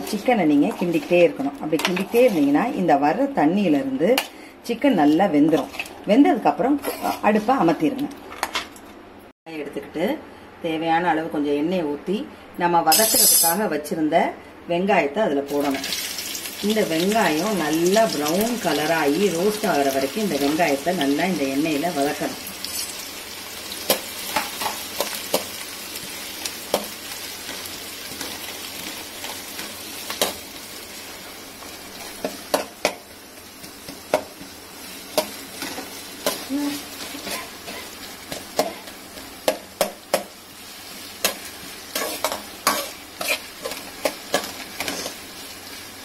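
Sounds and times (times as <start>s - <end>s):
spatula scraping a pan: 0.0s - 2.7s, 6.8s - 7.4s, 41.2s - 45.2s
onions sizzling in hot oil: 0.0s - 3.9s, 15.5s - 46.0s.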